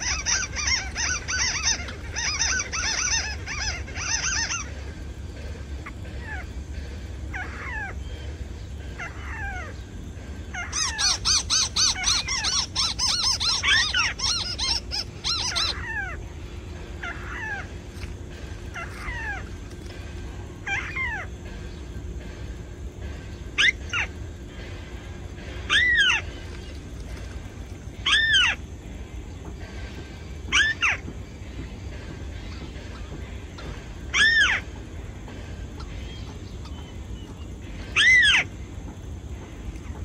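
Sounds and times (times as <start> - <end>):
bird falling calls: 0.0 - 4.9, 10.6 - 16.3, 17.0 - 19.9
sharp bird calls: 0.0 - 28.7, 35.7 - 38.7
bird rapid chattering: 0.0 - 28.8.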